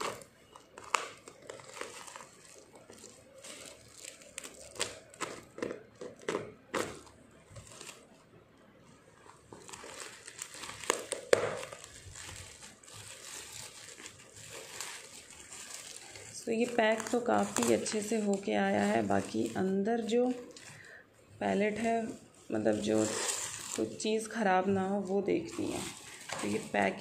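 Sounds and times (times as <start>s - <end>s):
packing tape tearing: 0.0s - 8.1s, 9.5s - 19.6s, 22.6s - 24.0s
bubble wrap crinkling: 0.0s - 27.0s.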